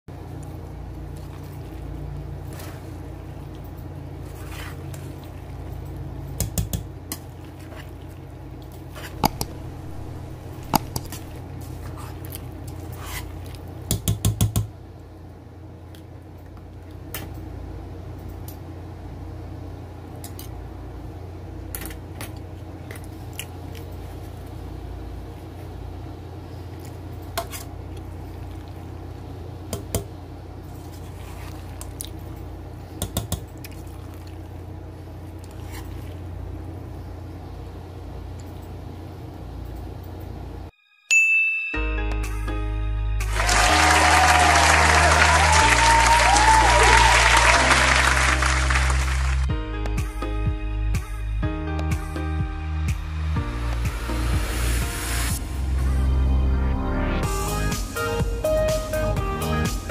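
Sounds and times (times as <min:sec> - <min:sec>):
steady low hum: 0:00.1 - 0:40.8, 0:42.2 - 0:59.9.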